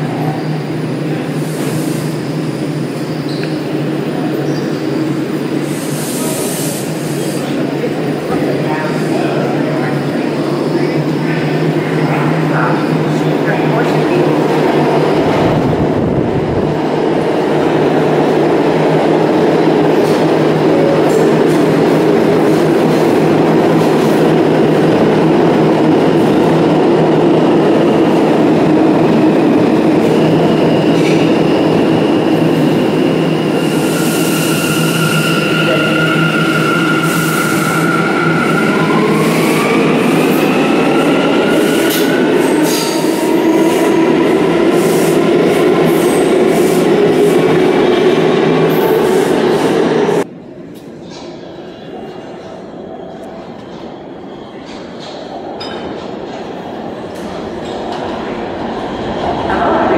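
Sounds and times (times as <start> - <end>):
subway train rumble: 0.0 - 59.9
train whines rising in pitch: 27.5 - 50.3.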